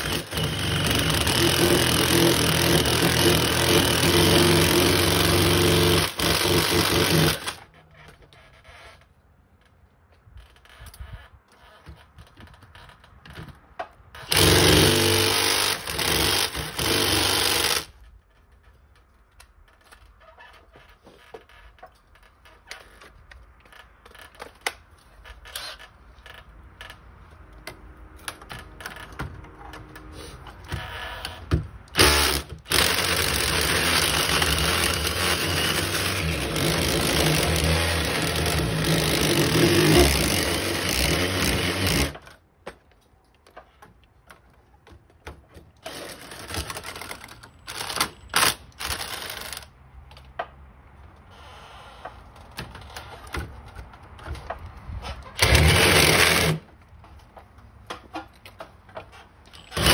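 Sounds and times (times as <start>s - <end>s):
drill boring into brick: 0.0s - 7.6s, 14.2s - 17.9s, 31.9s - 42.2s, 45.8s - 49.6s, 55.4s - 56.6s, 59.6s - 59.9s.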